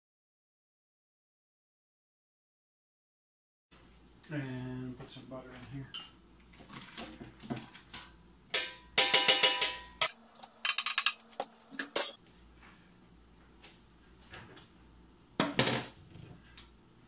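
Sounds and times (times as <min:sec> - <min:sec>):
metal baking pans clattering: 0:06.0 - 0:12.2.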